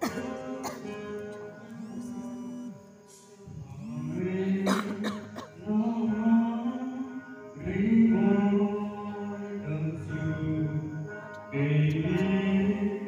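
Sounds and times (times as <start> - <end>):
man singing into microphone: 0.0 - 13.0.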